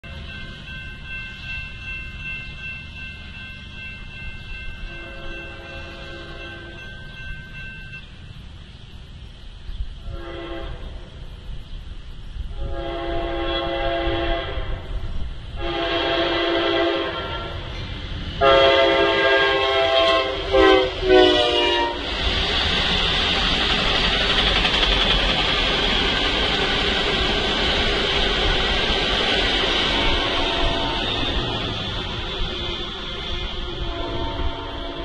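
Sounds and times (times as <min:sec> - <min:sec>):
locomotive air horn blasts: 0:04.9 - 0:06.8, 0:10.0 - 0:11.1, 0:12.5 - 0:14.9, 0:15.6 - 0:17.7, 0:18.4 - 0:22.1, 0:30.0 - 0:31.6, 0:33.7 - 0:35.0
passenger cars rolling by: 0:16.3 - 0:35.0.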